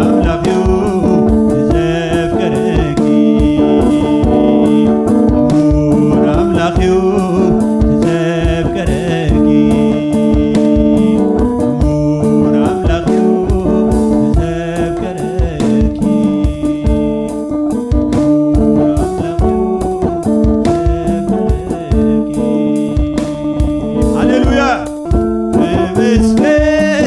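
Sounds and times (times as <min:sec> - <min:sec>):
instrumental backing with beat: 0:00.0 - 0:27.0
man singing a hymn: 0:00.0 - 0:27.0.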